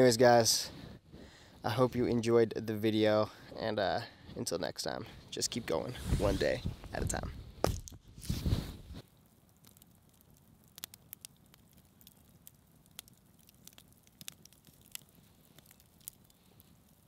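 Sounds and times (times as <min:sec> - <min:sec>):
low hiss: 0:00.0 - 0:07.4
campfire crackling: 0:00.0 - 0:17.0.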